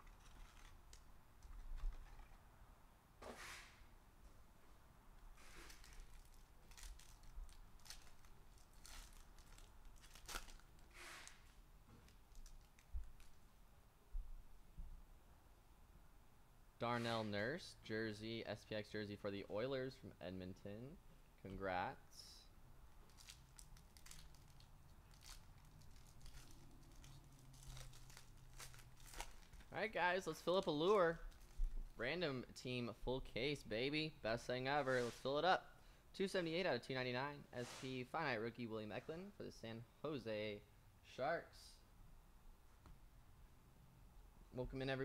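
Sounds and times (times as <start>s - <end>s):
foil pack tearing and crinkling: 5.4s - 11.5s, 23.1s - 29.7s.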